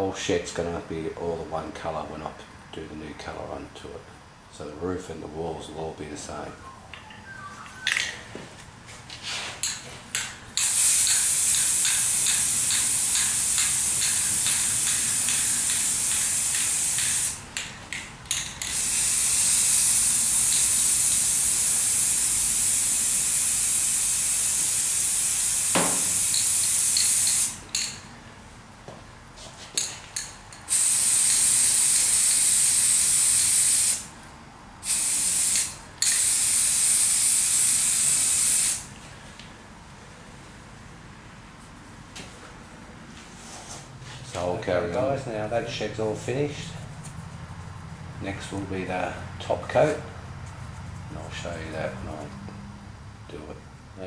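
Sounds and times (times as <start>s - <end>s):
spray can clicks and rattles: 9.6s - 22.1s, 25.6s - 28.0s, 29.8s - 34.0s, 34.8s - 38.8s
spray can hissing: 10.6s - 17.5s, 18.6s - 27.6s, 30.7s - 34.1s, 34.8s - 38.8s.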